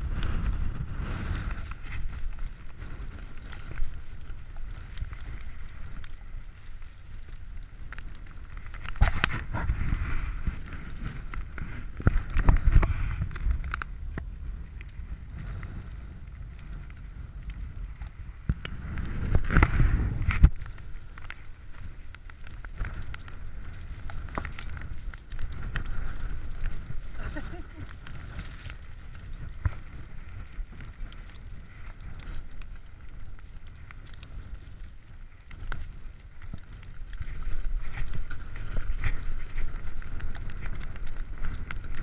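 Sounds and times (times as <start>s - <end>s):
bike clicks and rattles: 0.0s - 42.0s
wind rumble on microphone: 0.0s - 42.0s.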